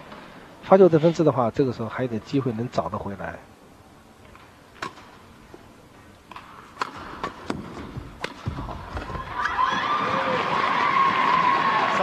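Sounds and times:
rackets hitting shuttlecock: 4.3 - 5.2, 6.3 - 10.3.

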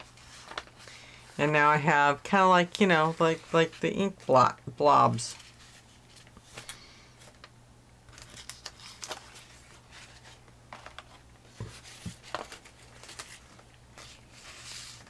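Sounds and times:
paper rustling: 0.0 - 0.9, 5.2 - 7.5, 8.1 - 15.0.

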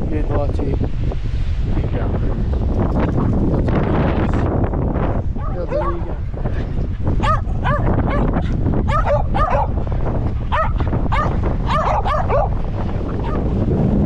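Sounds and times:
wind rumble on microphone: 0.0 - 14.0
dog yipping: 5.4 - 6.1, 7.2 - 9.8, 10.5 - 12.6.

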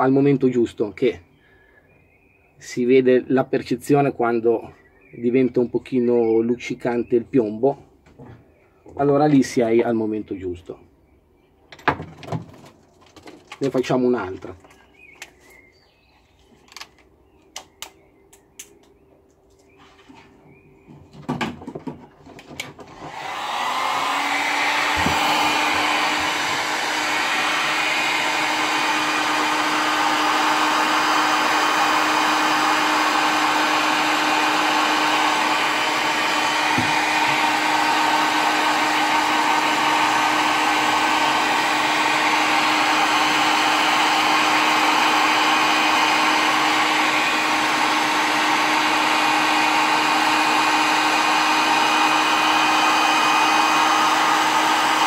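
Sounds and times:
heat gun blowing air: 22.9 - 55.0.

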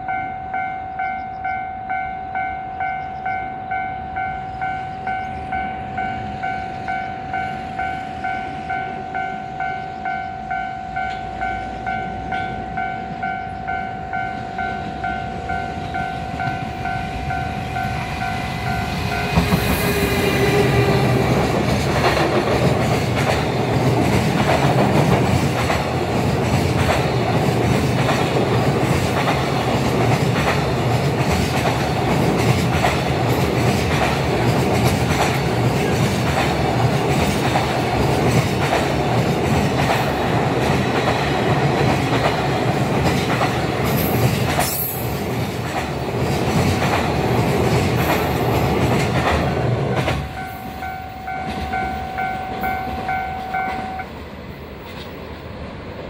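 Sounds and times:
freight train rumble: 0.0 - 56.0
train wheels clicking over rail joints: 14.4 - 55.3.

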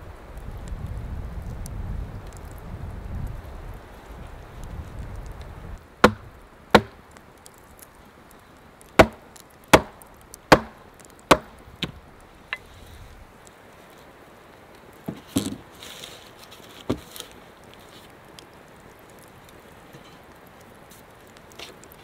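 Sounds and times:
axe striking a log: 6.0 - 7.0, 9.0 - 12.0.

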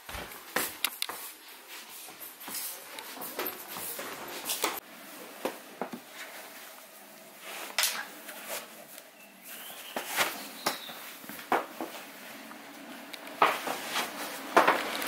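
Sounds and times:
rustling and scuffing of boots: 0.0 - 15.0.

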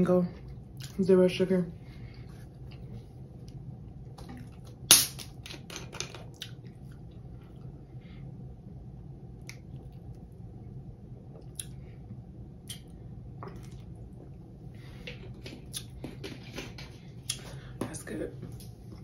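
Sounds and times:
low steady hum: 0.0 - 19.0
wet mouth clicks: 11.4 - 11.8.

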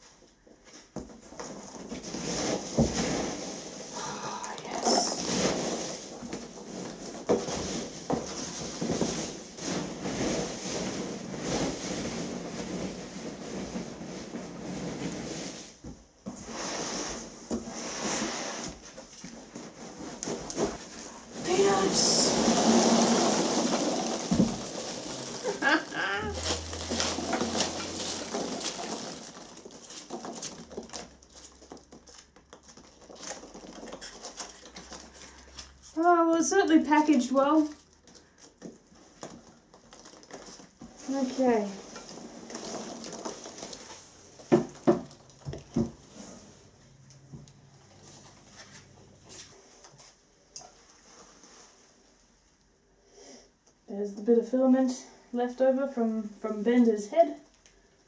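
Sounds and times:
packing peanuts rustling: 1.4 - 15.4, 19.2 - 46.7.

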